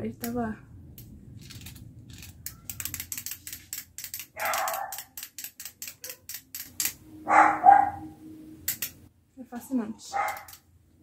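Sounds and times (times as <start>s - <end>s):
wind-up toy clockwork ticking: 2.2s - 7.0s.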